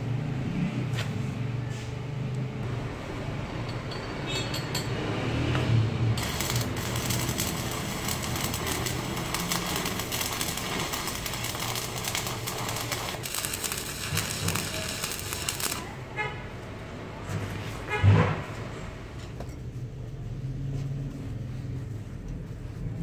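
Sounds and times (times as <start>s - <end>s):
welding arc crackling: 6.2s - 16.0s.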